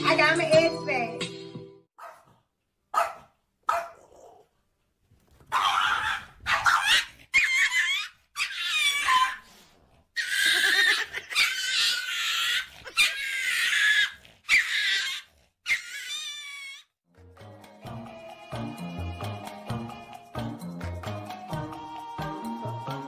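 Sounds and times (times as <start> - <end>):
small dog yelping and squealing: 5.5 - 9.6, 10.2 - 16.9.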